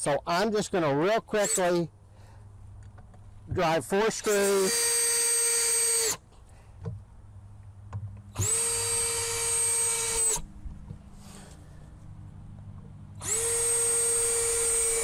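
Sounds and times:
cordless drill motor whining: 1.3s - 1.8s, 4.2s - 6.2s, 8.3s - 10.5s, 13.2s - 15.0s.

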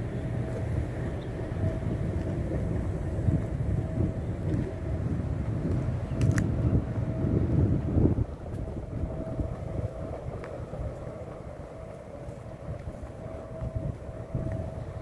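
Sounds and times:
faint steady hum: 0.0s - 15.0s
wind rumbling on microphone: 0.0s - 15.0s.

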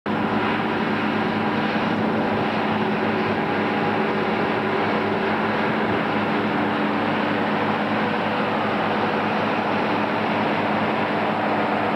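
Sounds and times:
tractor engines droning: 0.1s - 11.9s.

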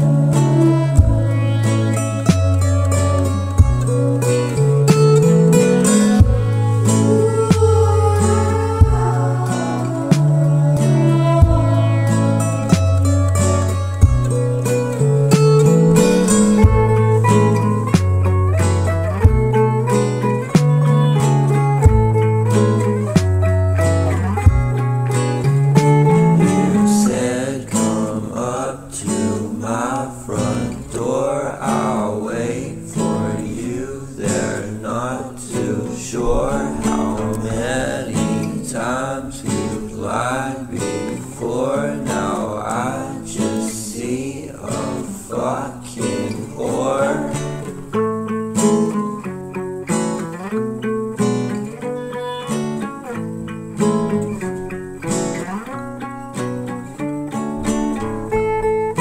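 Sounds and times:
person singing: 0.0s - 18.3s, 25.5s - 48.0s
strummed acoustic guitar: 0.0s - 59.0s.

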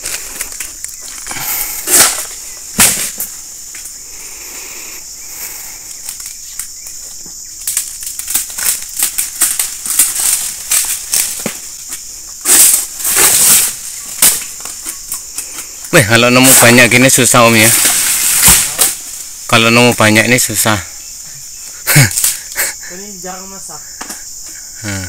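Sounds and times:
fronds rustling: 0.0s - 24.6s
high insect drone: 0.0s - 25.0s
sickle cutting strokes: 7.7s - 15.9s.

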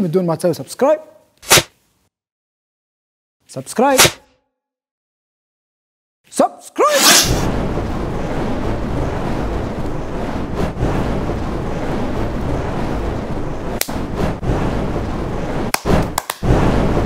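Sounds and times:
rushing flames: 6.9s - 17.0s.

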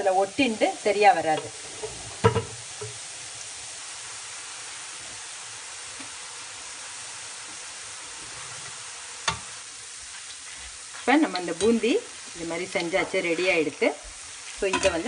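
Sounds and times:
batter sizzling in hot oil: 0.0s - 15.0s.

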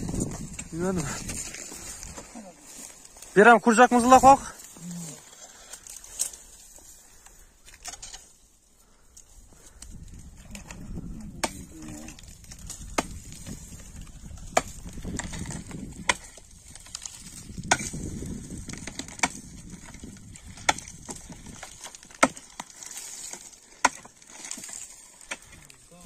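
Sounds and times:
hand tool chopping ice: 11.4s - 13.6s, 14.3s - 25.6s.

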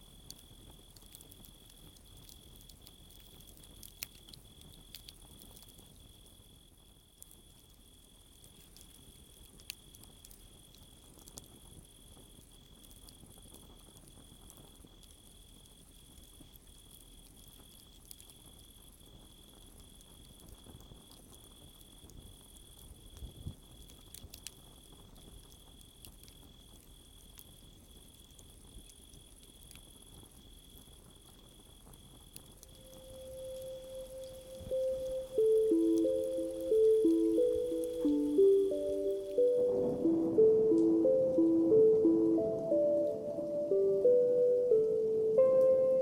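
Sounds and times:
campfire crackling and popping: 0.1s - 6.1s, 8.2s - 18.4s, 31.8s - 44.2s
crickets chirping: 25.8s - 46.0s.

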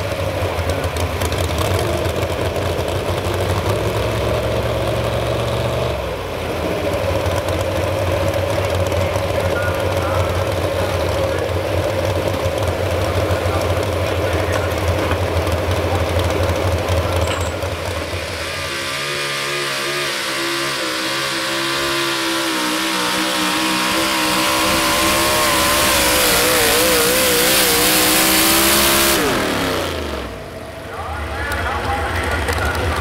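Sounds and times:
deep truck engine running: 0.0s - 33.0s
truck engine at full throttle: 0.0s - 33.0s.

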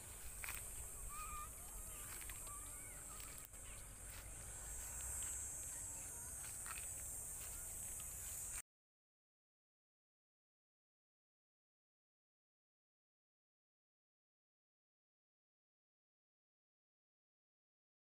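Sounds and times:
birds chirping: 0.0s - 8.6s
steady high hiss: 0.0s - 8.6s.

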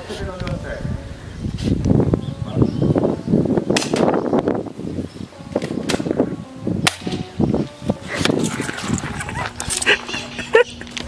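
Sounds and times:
airsoft gun shots: 3.8s - 4.1s.

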